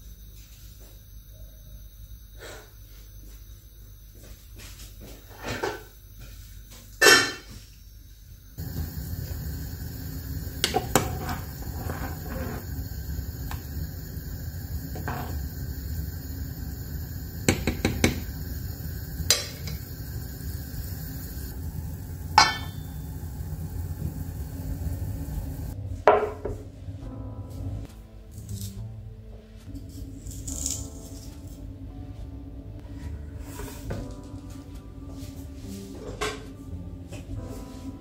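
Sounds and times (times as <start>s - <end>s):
pot of broth boiling: 8.6s - 25.8s
metal lid clanking: 22.4s - 22.9s.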